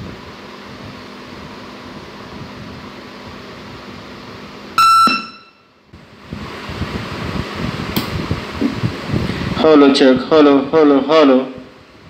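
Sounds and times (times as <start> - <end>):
high-pitched tone from speakers: 4.8 - 5.7.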